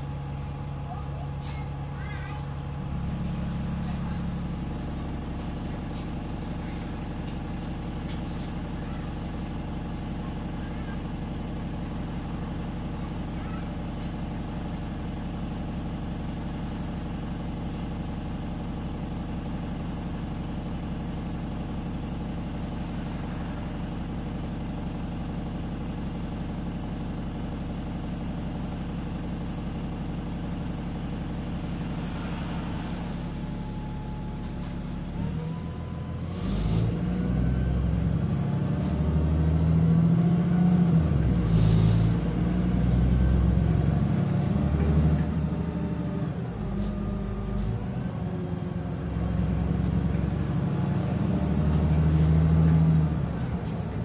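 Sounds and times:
bus diesel engine: 0.0 - 54.0
air brake hisses: 41.4 - 42.2.

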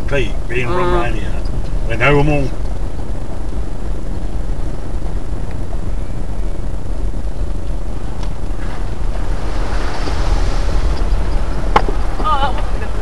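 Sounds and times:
vehicle rumbling on rough track: 0.0 - 13.0
hiss: 8.3 - 13.0.

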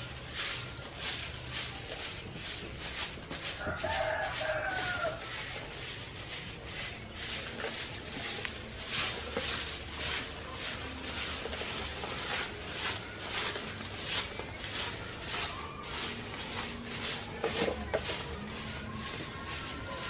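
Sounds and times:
broom sweeping stony ground: 0.0 - 20.0
rooster crowing: 3.6 - 5.4.

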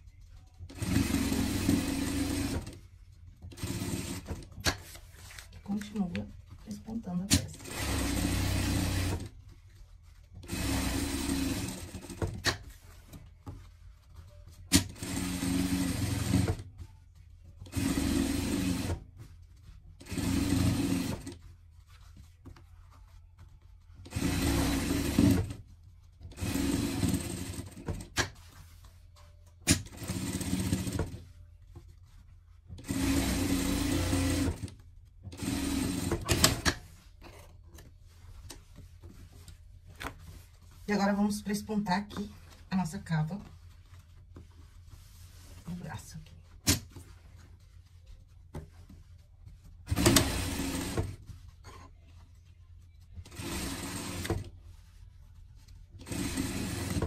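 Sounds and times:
sewing machine stitching: 0.7 - 2.8, 3.5 - 4.8, 7.3 - 9.3, 10.4 - 12.6, 14.7 - 16.6, 17.7 - 19.0, 20.0 - 21.4, 24.1 - 25.6, 26.3 - 28.3, 29.7 - 31.2, 32.8 - 34.7, 35.3 - 36.8, 49.9 - 51.2, 53.2 - 54.5, 56.0 - 57.0.

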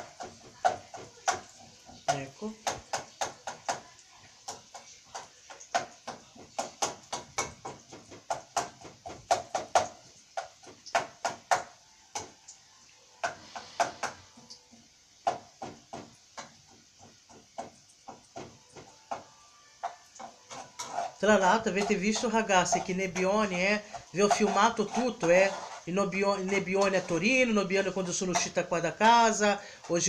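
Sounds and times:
kitchen utensil knocking: 15.2 - 30.0.

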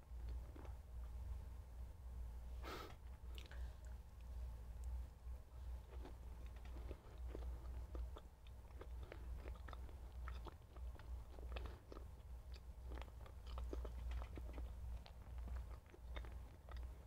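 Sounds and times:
low hum: 0.0 - 17.0
person chewing food: 5.8 - 17.0.

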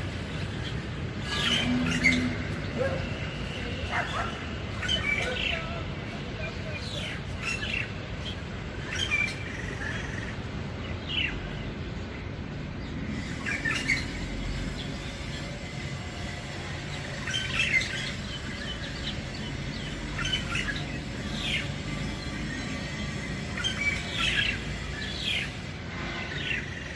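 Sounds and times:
bird chirping calls: 0.4 - 10.4.

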